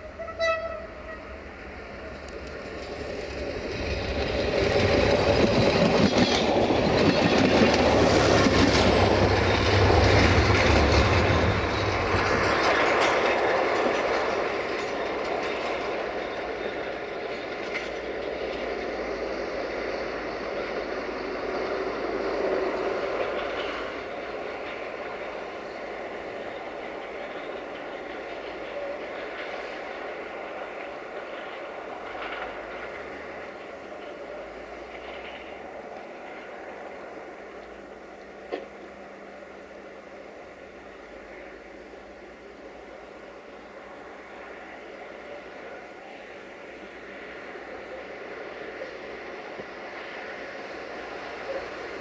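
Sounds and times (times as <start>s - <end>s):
diesel railcar passing: 0.0s - 52.0s
wheel clatter over rail joints: 2.1s - 36.6s.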